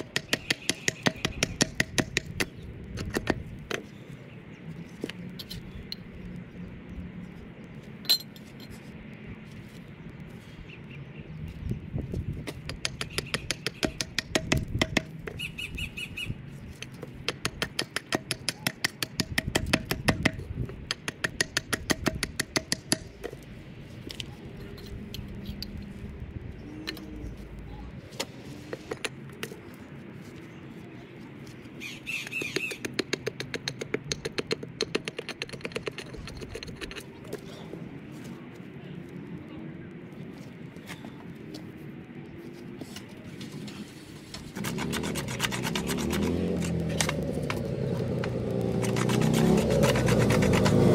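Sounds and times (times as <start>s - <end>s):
bird calls: 0.0s - 1.8s, 12.8s - 14.2s, 15.2s - 17.1s, 28.8s - 33.8s
hatchet chopping wood: 0.0s - 3.8s, 12.4s - 15.4s, 16.8s - 23.4s, 32.3s - 36.0s, 44.6s - 50.9s.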